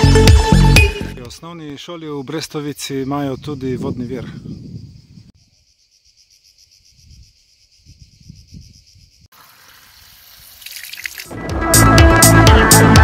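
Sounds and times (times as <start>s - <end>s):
insects chirping: 1.5s - 11.3s
water running into plastic bottle: 9.5s - 11.4s.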